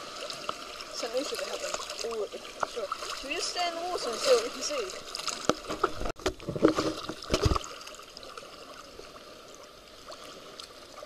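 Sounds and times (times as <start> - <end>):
water sloshing knocks: 1.0 - 7.8.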